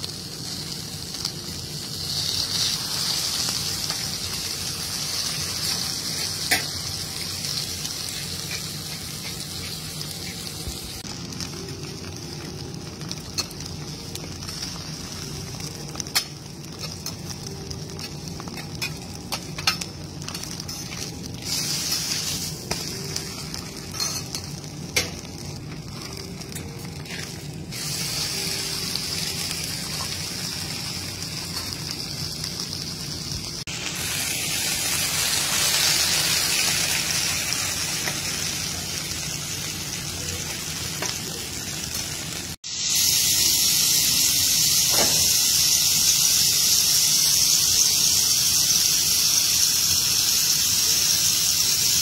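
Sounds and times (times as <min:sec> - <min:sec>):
steaks sizzling on a griddle: 0:00.0 - 0:52.0.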